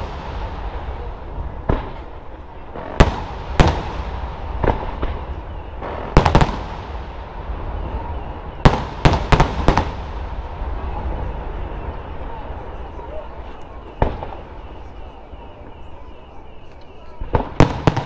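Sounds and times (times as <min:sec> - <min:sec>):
continuous fireworks display noise: 0:00.0 - 0:18.0.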